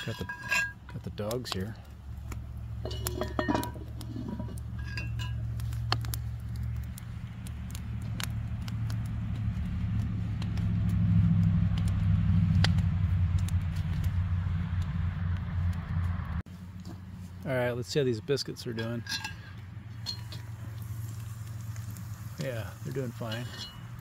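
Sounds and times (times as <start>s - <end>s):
fire crackling and popping: 0.0s - 24.0s
fire low rumble: 0.0s - 24.0s
metal clink: 2.8s - 5.4s, 18.8s - 20.4s.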